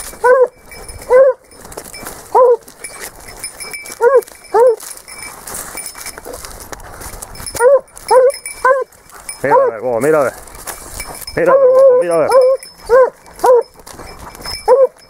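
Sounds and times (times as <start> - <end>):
hound yelping barks: 0.0 - 5.2, 7.4 - 9.9, 11.4 - 15.0.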